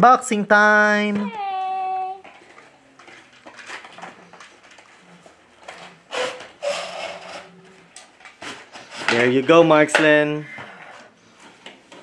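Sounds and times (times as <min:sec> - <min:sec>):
rustling of cardboard and plastic packaging: 0:01.7 - 0:09.8.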